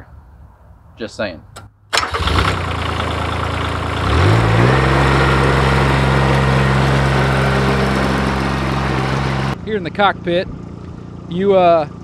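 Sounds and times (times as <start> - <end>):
diesel mower engine revving: 1.9 - 9.6.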